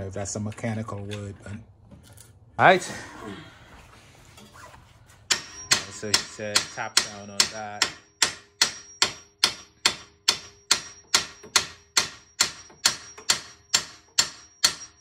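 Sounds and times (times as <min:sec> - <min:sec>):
hammer tapping on metal: 0:05.3 - 0:15.0.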